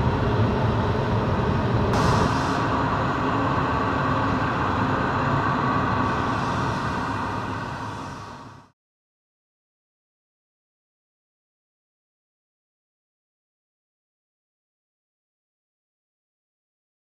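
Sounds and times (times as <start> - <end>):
furnace burner roaring: 0.0 - 8.8
bright hiss: 2.0 - 4.4, 6.0 - 8.7.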